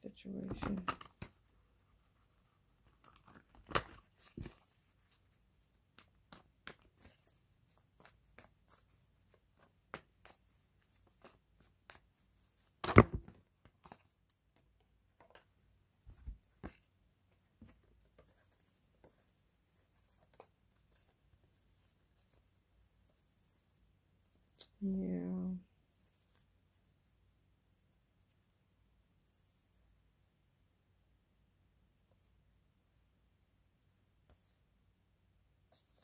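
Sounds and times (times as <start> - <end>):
cards shuffling: 2.8 - 14.3.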